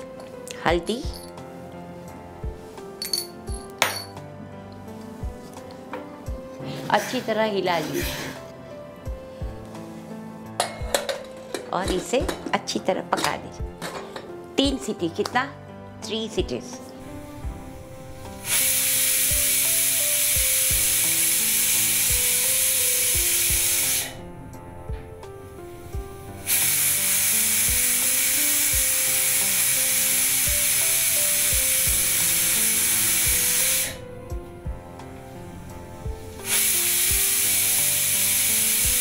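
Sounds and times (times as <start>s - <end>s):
pressure cooker whistling: 18.5s - 24.1s, 26.5s - 34.0s, 36.4s - 39.0s.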